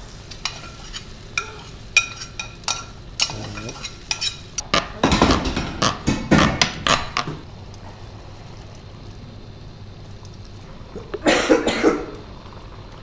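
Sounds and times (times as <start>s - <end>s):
metal spoon scraping frying pan: 0.4s - 4.6s
man clearing throat: 11.2s - 12.2s.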